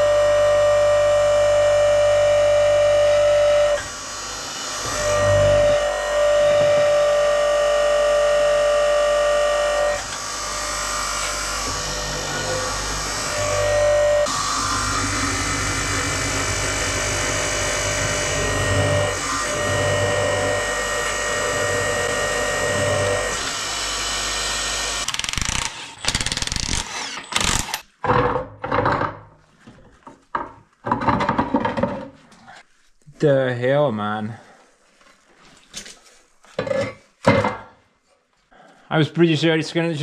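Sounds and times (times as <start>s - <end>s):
log splitter motor whining: 0.0s - 27.8s
knocking and scraping: 27.3s - 32.4s.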